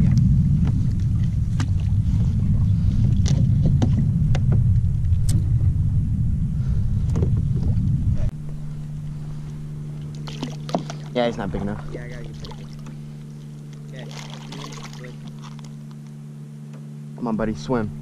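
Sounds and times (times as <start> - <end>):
wind buffeting microphone: 0.0 - 13.3
faint steady hum: 0.0 - 18.0.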